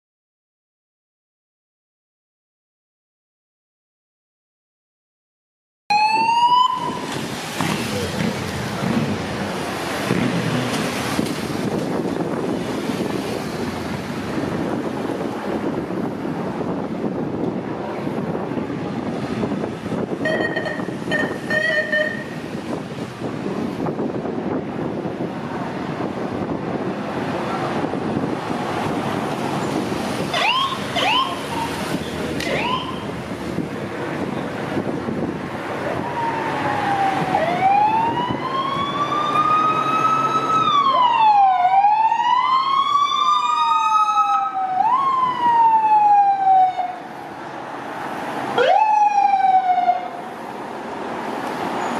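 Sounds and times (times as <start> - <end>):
siren wailing: 5.9 - 7.2, 30.3 - 31.8, 32.4 - 33.2, 35.9 - 47.0, 48.6 - 50.2
passing traffic: 5.9 - 51.9
wind: 5.9 - 51.9.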